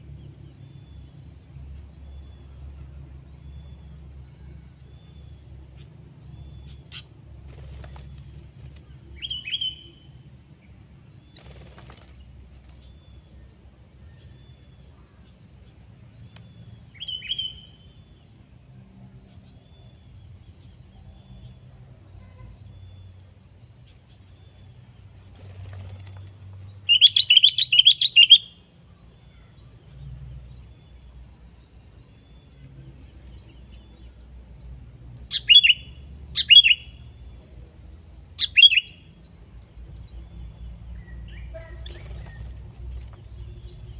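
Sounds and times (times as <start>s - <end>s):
bird calls and chirps: 0.2s - 18.4s, 19.2s - 34.2s, 35.3s - 37.5s, 38.4s - 43.9s.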